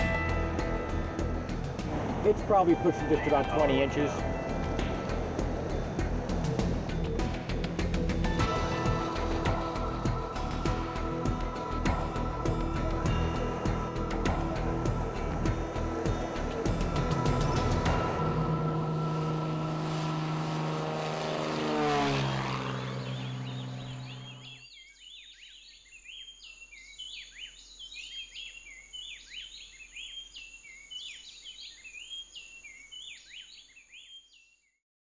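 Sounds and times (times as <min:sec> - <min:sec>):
steady high whine: 0:00.0 - 0:24.5
propeller airplane passing: 0:00.0 - 0:24.6.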